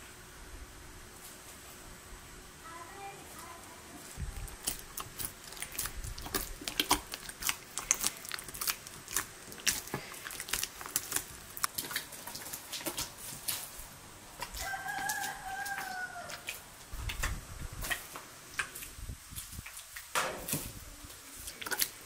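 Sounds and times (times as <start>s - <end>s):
dough squished by hand: 4.2s - 13.8s
rooster crowing: 14.5s - 16.6s.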